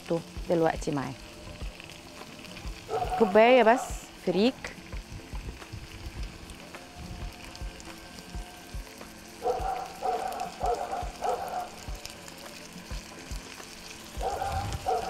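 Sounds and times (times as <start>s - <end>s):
grain sizzling in a pan: 0.0s - 15.0s
dog barking: 2.9s - 3.9s, 9.4s - 11.8s, 14.2s - 15.0s.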